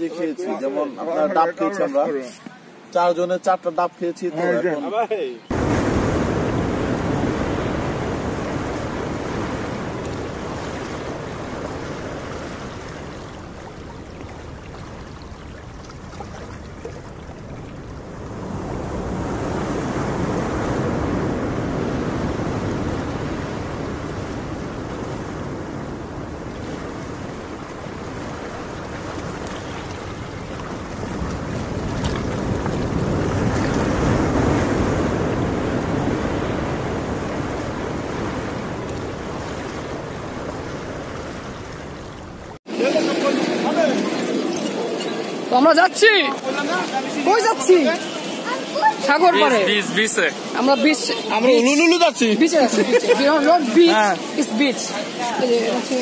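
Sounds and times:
wind rumbling on microphone: 5.5 - 42.6
surf washing onto beach: 5.5 - 56.0.

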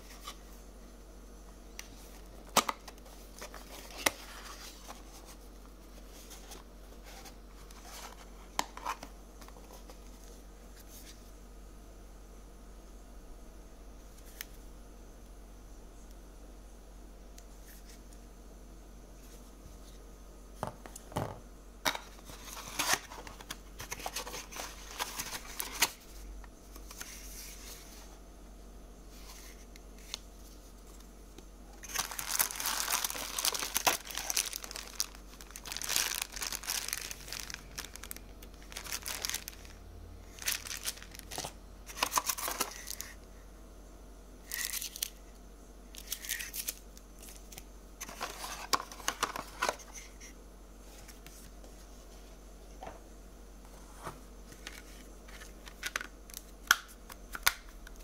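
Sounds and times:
cardboard packaging handled: 22.1 - 26.1, 31.8 - 43.2
plastic wrapping crinkling: 31.8 - 43.2.

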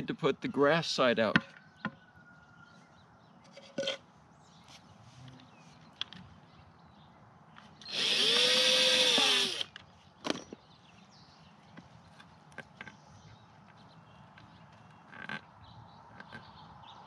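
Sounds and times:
cordless drill drilling into wood: 7.8 - 9.8.

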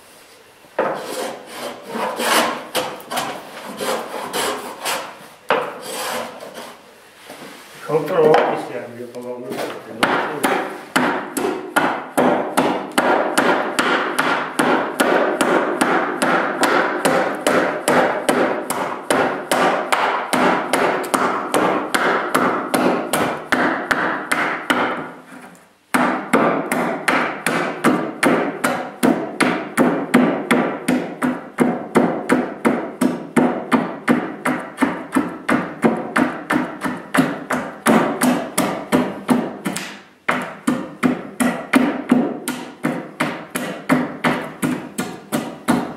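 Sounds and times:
axe chopping wood: 10.0 - 25.0, 25.9 - 45.9.

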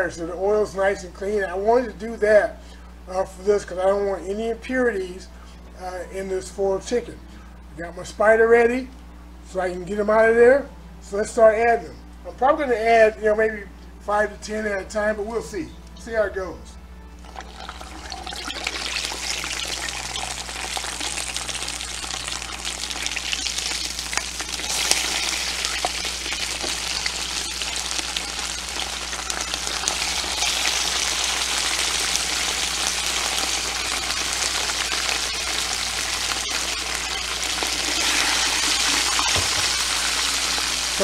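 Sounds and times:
hot oil sizzling: 17.2 - 41.0.

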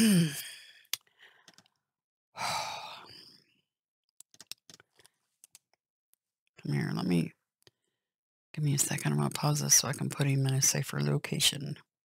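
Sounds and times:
person sighing: 0.0 - 0.8, 2.4 - 3.3.

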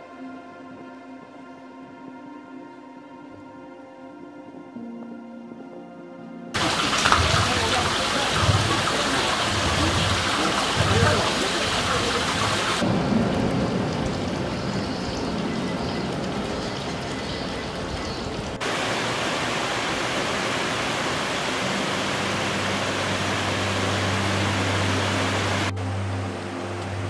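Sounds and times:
ambient hiss: 6.6 - 27.0
water rushing over weir: 6.6 - 27.0.

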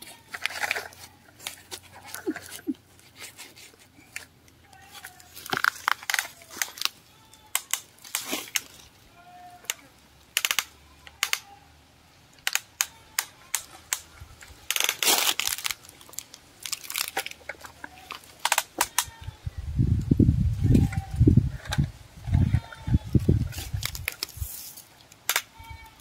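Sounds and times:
scraping rustle: 0.0 - 7.0, 7.7 - 9.0, 20.5 - 25.1.

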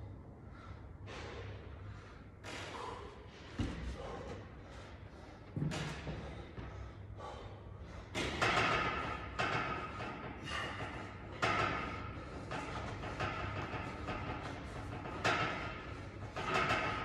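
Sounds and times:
thuds on steel pull-up rig: 8.1 - 17.0.

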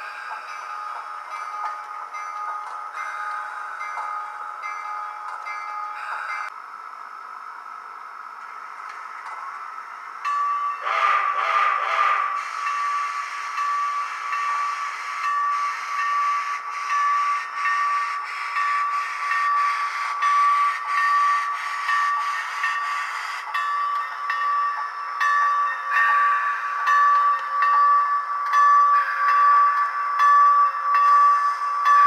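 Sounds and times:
steam whistle blast: 10.8 - 12.6
steam chuffs: 10.8 - 23.7
hiss: 10.9 - 23.5.

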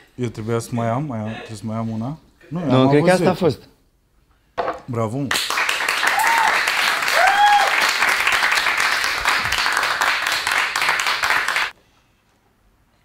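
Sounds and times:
small group clapping: 5.2 - 11.8.

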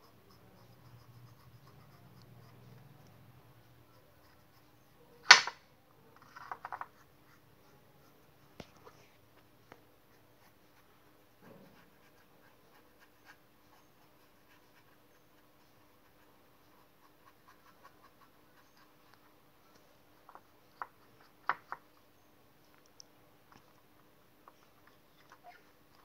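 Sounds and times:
paintbrush scratching: 0.0 - 4.9, 10.1 - 19.2.

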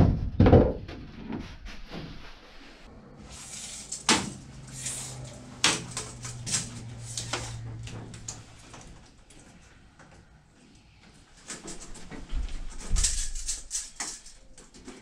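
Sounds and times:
wood clicking and scraping: 3.6 - 10.4.

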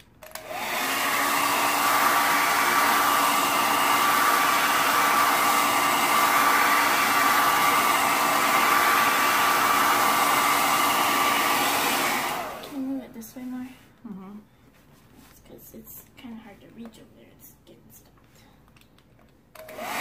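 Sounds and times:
hair dryer blowing with whine: 0.0 - 13.0, 19.6 - 20.0.

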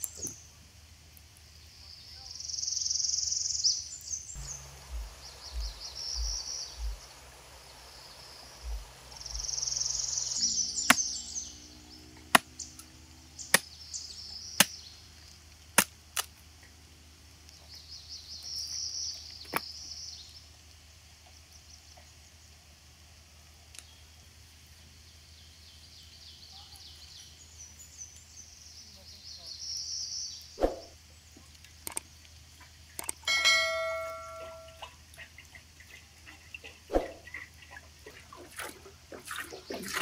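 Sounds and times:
high chirping: 2.7 - 14.8, 33.0 - 34.9
machete chopping wood: 12.3 - 12.6, 14.6 - 14.8.

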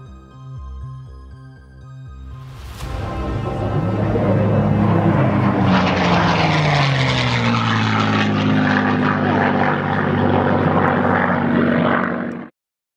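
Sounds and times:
propeller aircraft engine: 2.4 - 12.6.

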